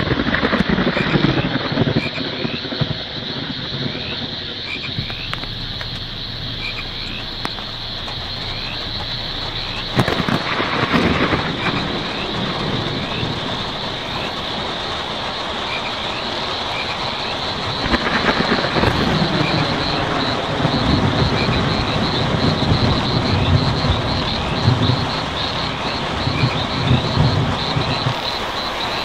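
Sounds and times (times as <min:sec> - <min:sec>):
distant thunder rumble: 0:00.0 - 0:29.0
rain on a tin roof: 0:00.0 - 0:29.0
high pulsing buzz: 0:03.9 - 0:14.9.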